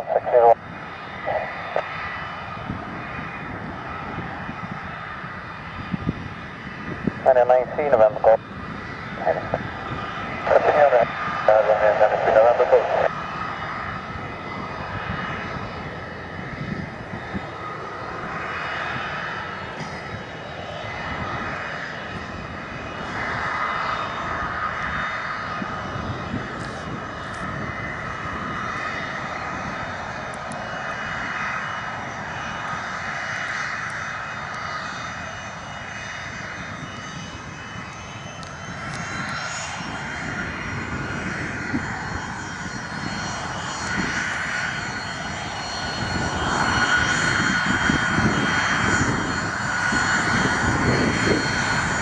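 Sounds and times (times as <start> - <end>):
jet engines whining: 0.0 - 52.0.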